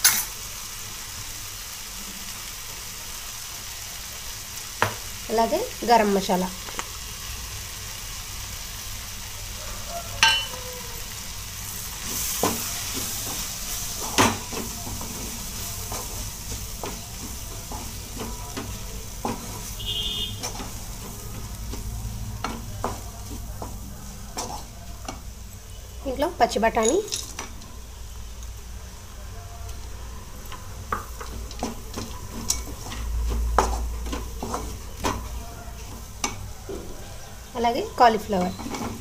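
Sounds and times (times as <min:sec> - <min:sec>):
masala sizzling in a pan: 0:00.0 - 0:39.0
spatula knocking and scraping pan: 0:12.0 - 0:25.3, 0:30.5 - 0:37.0, 0:38.1 - 0:39.0.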